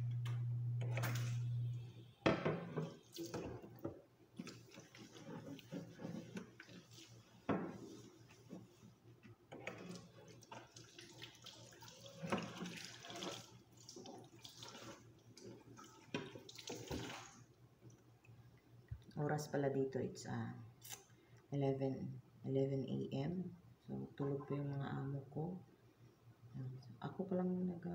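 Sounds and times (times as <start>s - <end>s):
tap water running: 2.3s - 8.7s, 9.5s - 17.5s.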